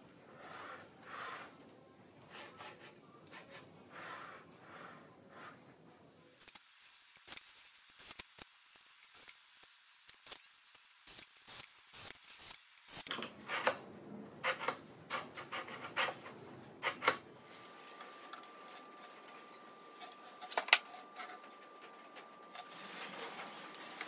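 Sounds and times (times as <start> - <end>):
metal parts and tools clicking: 6.4 - 13.2.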